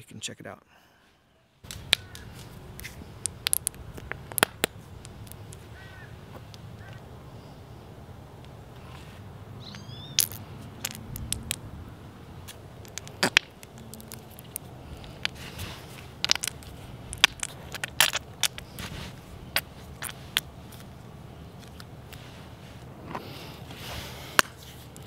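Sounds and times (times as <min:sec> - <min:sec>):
metal paint tubes crinkling: 0:01.7 - 0:05.9, 0:10.2 - 0:11.6, 0:12.4 - 0:21.0.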